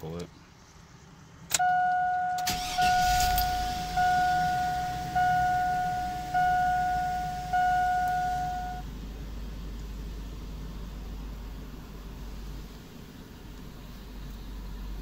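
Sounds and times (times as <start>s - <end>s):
car engine cranking and idling: 0.0s - 15.0s
dashboard warning chime: 1.5s - 8.9s.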